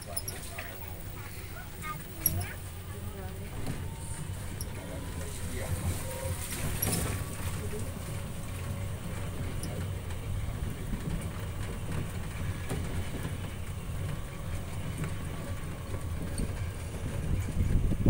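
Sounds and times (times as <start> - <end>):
tram rumbling: 0.0 - 18.0
rattling and knocks from body: 5.7 - 18.0.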